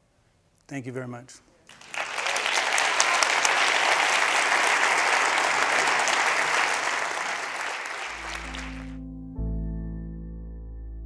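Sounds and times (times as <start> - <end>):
audience applauding: 1.7 - 9.0
slow music with held notes: 8.2 - 11.0.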